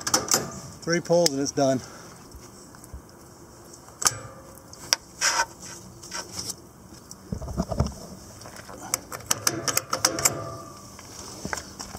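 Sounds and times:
short scrape: 5.2s - 6.5s.

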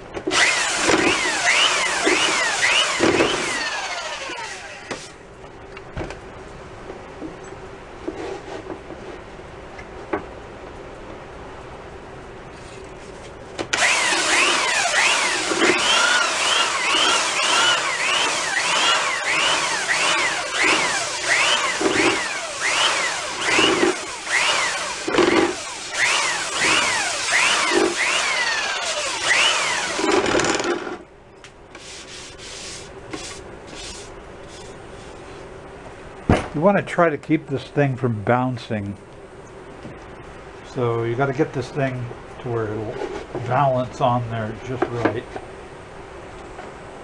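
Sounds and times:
belt sander sanding wood: 0.3s - 5.2s, 13.8s - 30.2s, 31.8s - 35.3s.

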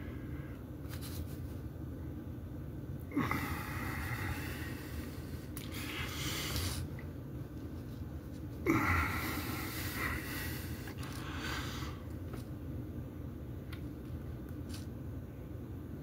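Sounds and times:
man breathing hard: 3.1s - 6.9s, 8.6s - 12.1s.

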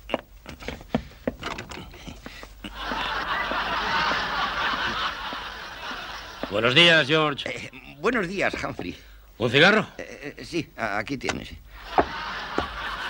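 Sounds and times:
audience laughing: 2.6s - 7.1s, 11.8s - 13.0s.

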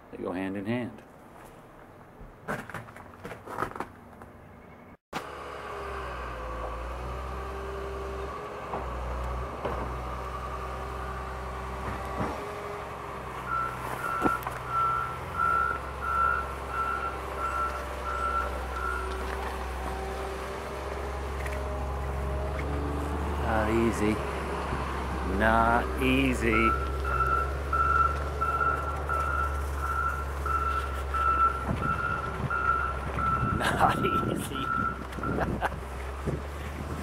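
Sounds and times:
wheel loader engine running: 5.2s - 37.0s
reversing alarm beeping: 13.5s - 19.2s, 26.5s - 33.6s, 34.2s - 35.4s.

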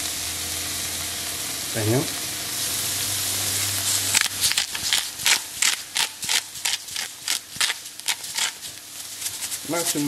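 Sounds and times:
ground beef sizzling in a skillet: 0.0s - 10.0s
spatula scraping a pan: 4.4s - 9.6s.

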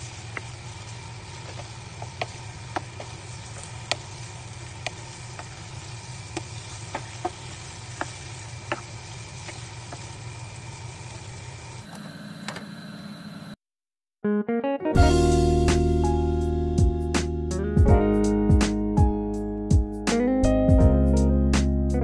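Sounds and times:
faint sizzling: 0.0s - 13.5s.

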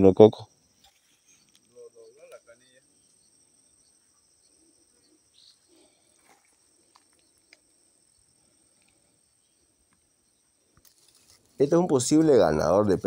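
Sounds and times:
high-pitched insect chorus: 0.0s - 13.0s
faint ticks: 6.1s - 7.8s, 8.7s - 9.1s.

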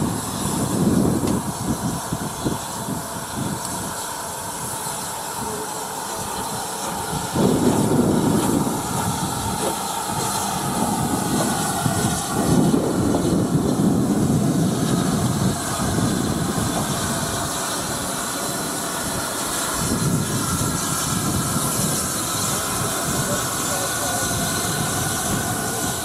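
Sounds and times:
steam hissing: 0.0s - 26.0s
steam locomotive moving slowly: 0.0s - 26.0s.

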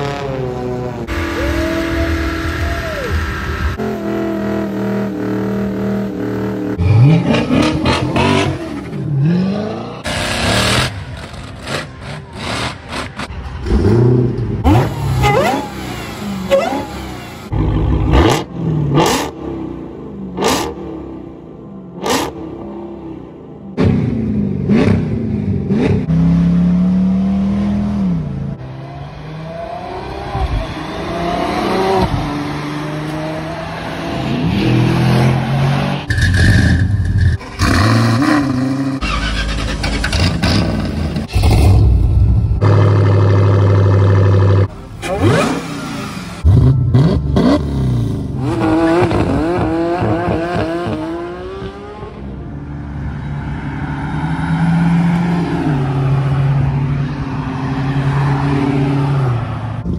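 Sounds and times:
car engines revving: 0.0s - 59.9s
muscle car passing on road: 24.8s - 59.9s.

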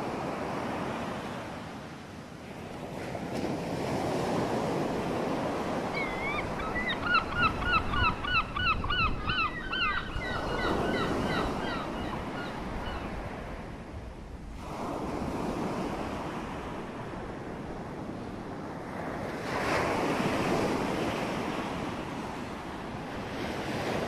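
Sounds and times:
birds calling: 5.9s - 13.1s.

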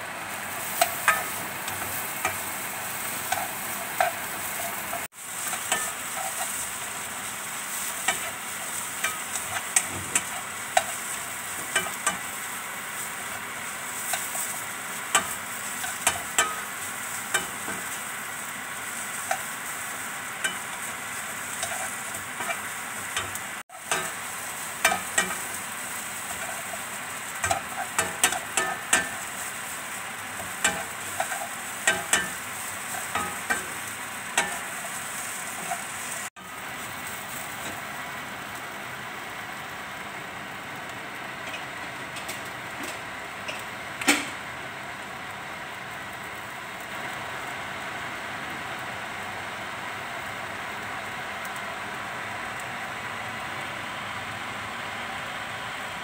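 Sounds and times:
food sizzling in oil: 0.0s - 56.0s
spatula clicking and scraping: 0.6s - 2.5s, 3.1s - 6.6s, 7.8s - 12.3s, 21.5s - 24.2s, 24.8s - 25.6s, 26.2s - 29.3s, 30.4s - 33.8s.

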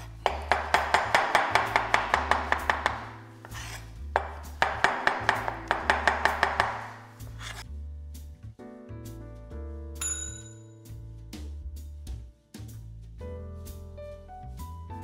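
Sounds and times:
knife chopping on cutting board: 0.0s - 7.6s.

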